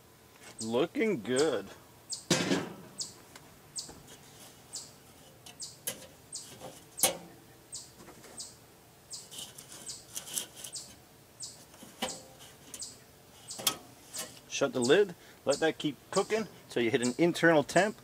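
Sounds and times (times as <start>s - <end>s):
songbird chirping: 0.4s - 18.0s
metal grill grate clinking: 4.0s - 7.4s, 9.2s - 11.0s, 11.7s - 14.5s.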